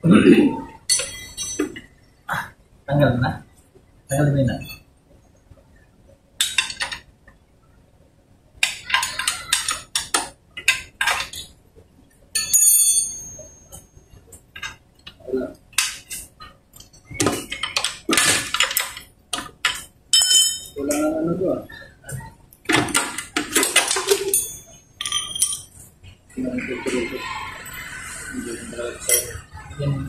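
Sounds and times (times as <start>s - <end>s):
wrench clinking and scraping metal: 0.9s - 1.9s, 12.4s - 13.9s, 14.5s - 14.8s, 15.8s - 20.8s, 22.8s - 25.9s.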